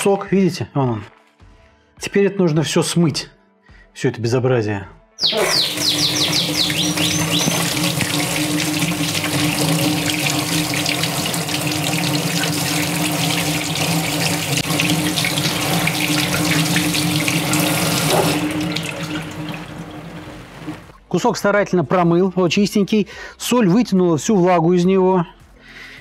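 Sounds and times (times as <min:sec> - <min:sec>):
tap water splashing in sink: 0:05.3 - 0:20.9.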